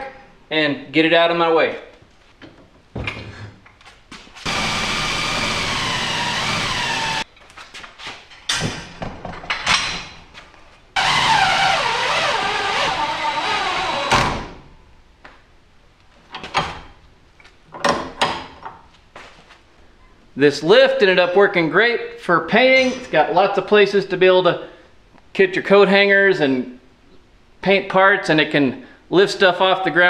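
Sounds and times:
cordless drill spinning: 4.4s - 7.2s, 11.0s - 14.1s
hoist knocks and clunks: 17.7s - 18.8s.

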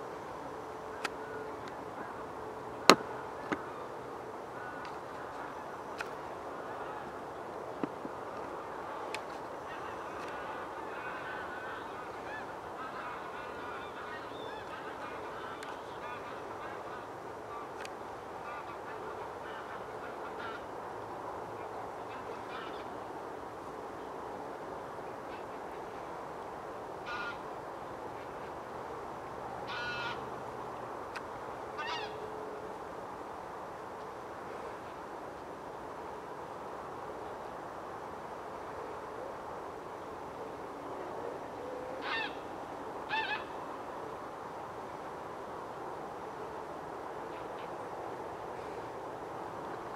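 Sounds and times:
background hiss: 0.0s - 49.9s
birds honking calls: 8.6s - 17.8s, 29.7s - 30.3s, 31.8s - 32.3s, 42.0s - 42.5s
harsh animal calls: 42.0s - 42.4s.

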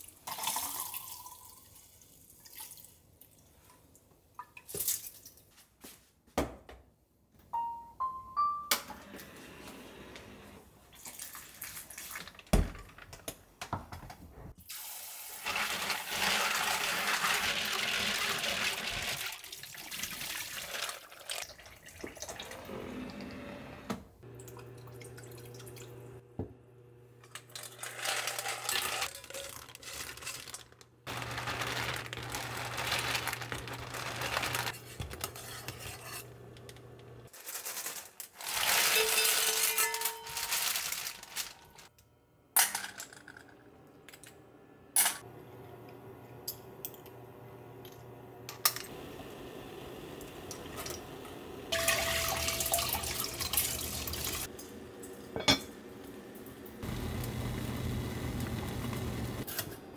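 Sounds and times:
water running: 14.7s - 26.5s, 48.8s - 55.7s
induction cooktop humming: 22.4s - 59.9s
utensils clinking: 27.2s - 41.9s, 51.7s - 54.4s, 55.0s - 55.7s.

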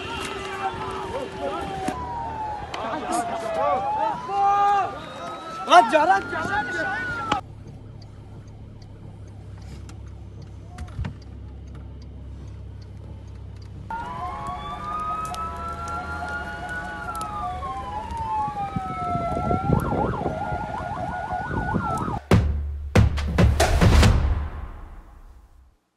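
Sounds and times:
emergency sirens wailing: 0.0s - 11.8s, 13.9s - 22.3s
low steady rumble: 7.4s - 20.2s.

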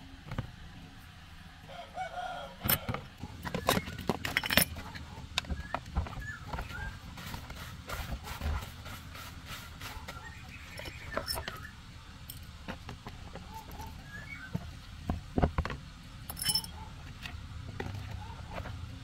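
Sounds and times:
metallic clinks of tools: 4.2s - 4.8s, 16.3s - 16.8s.

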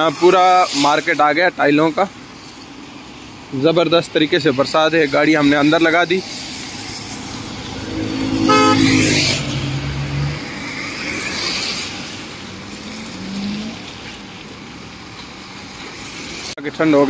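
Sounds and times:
cars passing on wet road: 0.0s - 17.0s
car horn beep: 8.4s - 9.2s.

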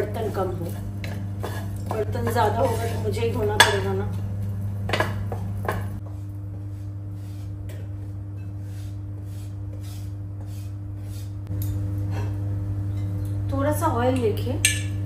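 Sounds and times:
wooden spoon scraping a pot: 0.0s - 3.8s, 4.9s - 11.5s
steady low hum: 0.0s - 15.0s.

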